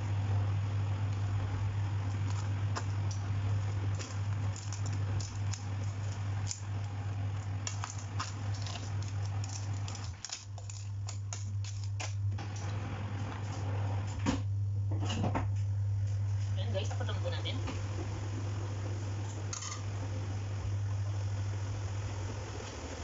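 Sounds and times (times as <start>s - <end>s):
steady low hum: 0.0s - 23.0s.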